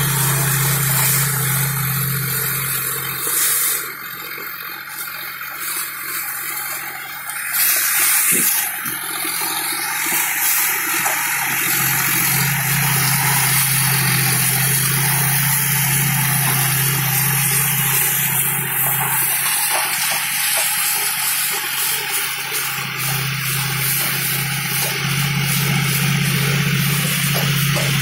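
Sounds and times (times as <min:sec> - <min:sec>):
rotavator churning plant debris: 0:00.0 - 0:28.0
tractor diesel engine running: 0:00.0 - 0:28.0
loud steady rushing hiss: 0:09.7 - 0:28.0.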